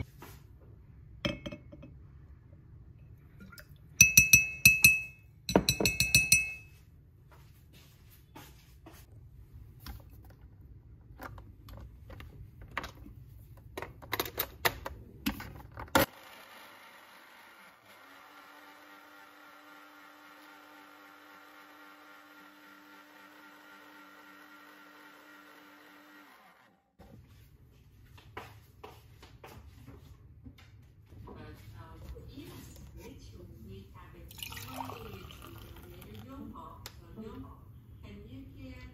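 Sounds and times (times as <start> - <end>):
blender running: 16.0 - 26.8.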